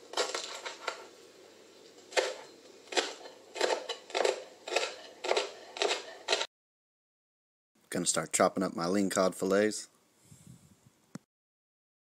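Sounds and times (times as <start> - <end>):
knife chopping on cutting board: 2.1 - 6.5.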